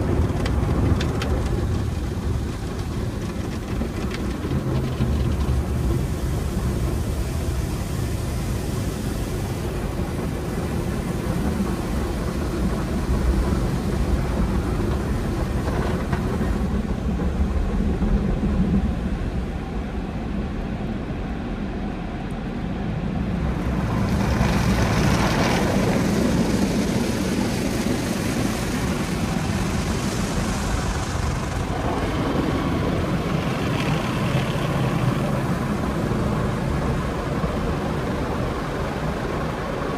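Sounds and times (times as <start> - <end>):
car wash machinery rumble: 0.0 - 39.9
hissing water spray: 1.6 - 16.6, 23.5 - 39.9.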